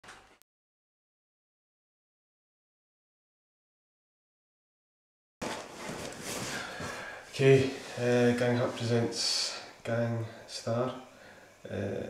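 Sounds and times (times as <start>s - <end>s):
bag rustling: 5.4s - 8.8s.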